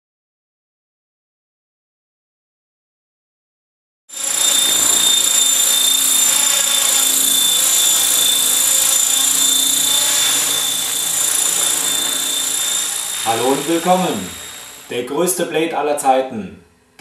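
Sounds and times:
electric motor whine: 4.1 - 15.1
spinning helicopter rotor: 4.1 - 15.4.

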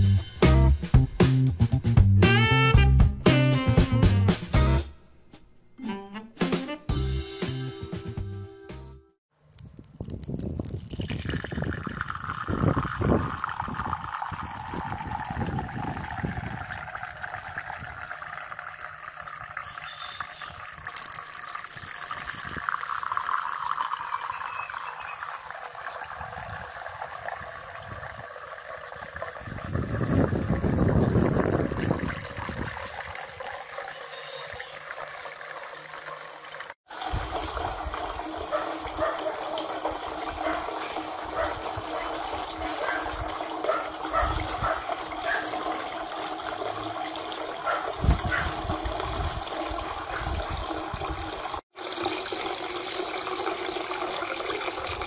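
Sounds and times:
fountain water splashing: 31.8 - 48.1, 48.9 - 55.0.

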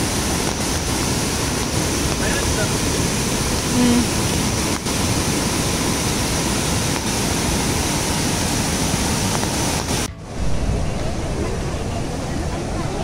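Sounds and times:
water rushing over rocks: 0.0 - 13.0
brief low tone: 10.1 - 13.0.

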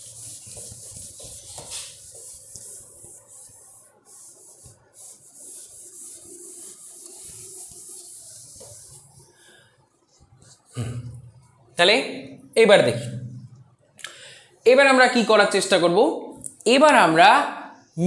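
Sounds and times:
cloth wiping a whiteboard: 0.0 - 10.8.

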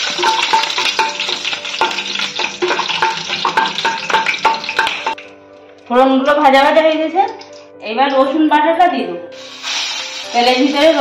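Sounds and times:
spices sizzling in hot oil: 0.0 - 5.4, 9.3 - 11.0.

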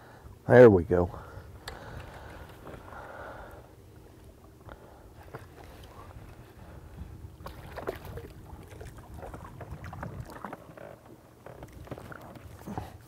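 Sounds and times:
low rumble of wind: 0.0 - 13.0
water lapping against boat: 1.0 - 13.0
fish splashing in water: 7.4 - 10.9.

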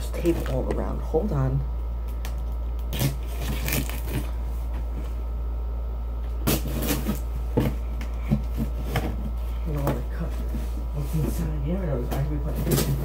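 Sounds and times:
packing tape pulled off: 2.8 - 4.3.

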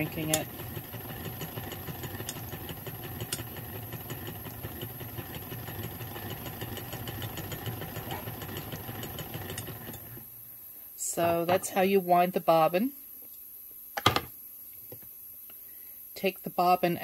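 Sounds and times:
sewing machine whirring and ticking: 0.0 - 10.2.

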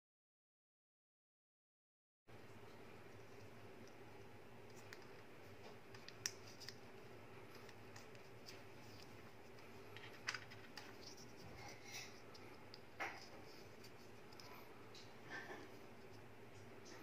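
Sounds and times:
faint steady hum: 2.3 - 17.0
fingers handling wire and connectors: 4.6 - 15.2.

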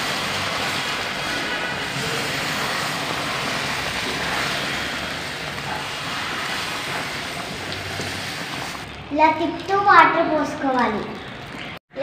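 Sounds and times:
water pouring into pan hissing: 0.0 - 9.0.

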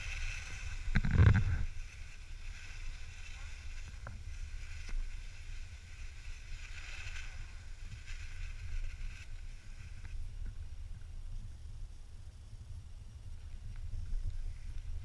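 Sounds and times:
skis swishing over snow: 0.0 - 11.0
wind rumble on microphone: 0.0 - 15.0.

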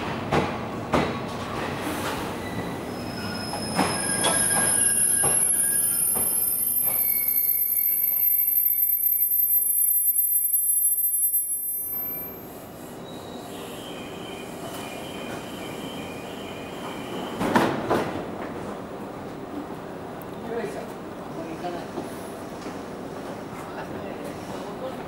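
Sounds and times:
train brakes squealing: 1.8 - 17.6.

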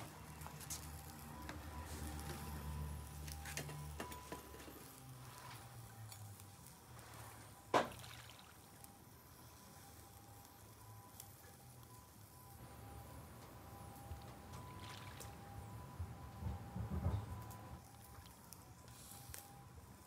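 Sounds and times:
faint sizzling and crackles: 0.0 - 20.0
sharp pop from coals: 7.7 - 8.0.

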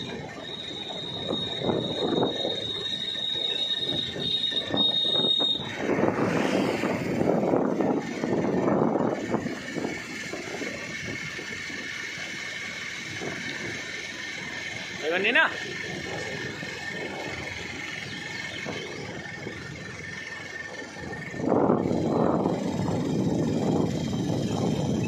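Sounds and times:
wind buffeting microphone: 0.0 - 15.0, 15.7 - 25.0
high-pitched whine: 0.0 - 25.0
road noise: 0.0 - 25.0.

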